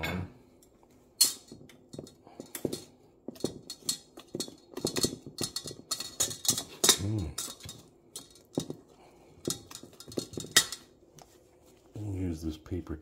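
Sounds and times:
wire whisk scraping a steel bowl: 2.0s - 8.8s.

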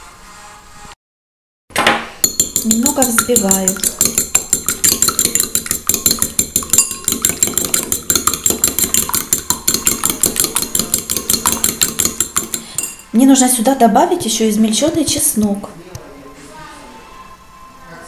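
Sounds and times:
fork clinking against ceramic bowl: 2.2s - 13.1s.

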